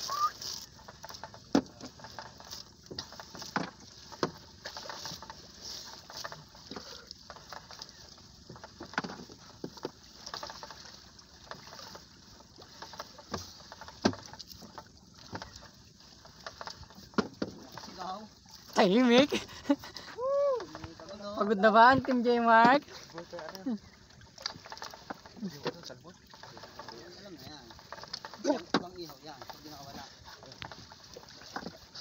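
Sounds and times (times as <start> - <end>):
water splashing and dripping: 0.0 - 19.3.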